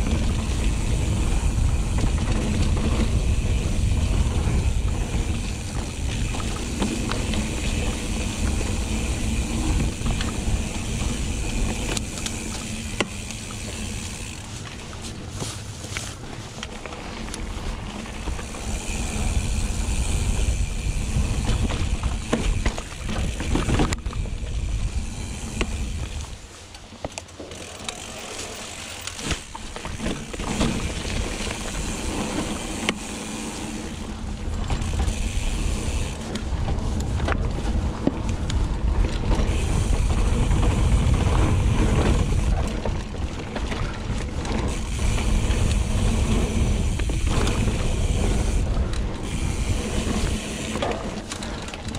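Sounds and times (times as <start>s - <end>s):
freehub buzzing: 0.0s - 14.8s, 18.0s - 26.4s, 27.6s - 36.6s, 44.6s - 51.9s
bike rattling and knocking: 0.0s - 51.9s
tyres rumbling on dirt: 0.0s - 51.9s.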